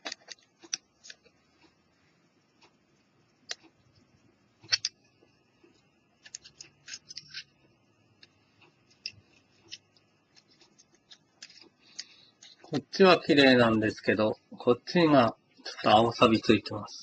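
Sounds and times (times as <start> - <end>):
cotton swab scrubbing: 8.2 - 12.8.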